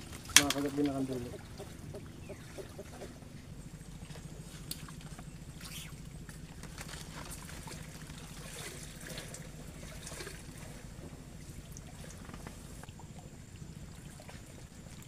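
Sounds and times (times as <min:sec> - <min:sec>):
fish splashing at water surface: 0:00.0 - 0:12.9
steady low hum: 0:00.0 - 0:15.0
water trickling: 0:00.0 - 0:15.0.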